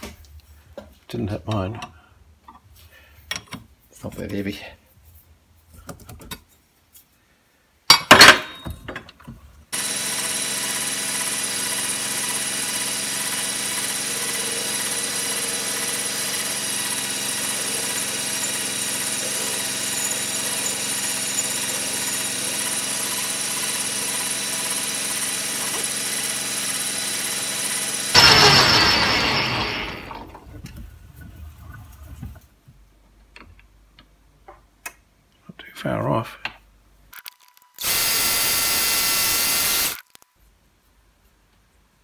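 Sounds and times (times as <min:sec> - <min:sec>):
metal lathe running: 0:09.8 - 0:30.3, 0:37.8 - 0:40.0.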